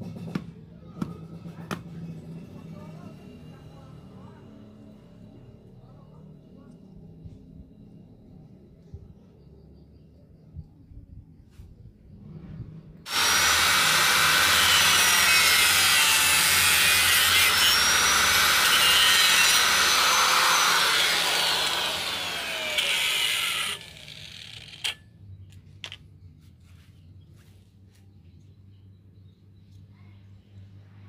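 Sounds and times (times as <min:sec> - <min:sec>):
angle grinder cutting wood: 0:13.1 - 0:25.0.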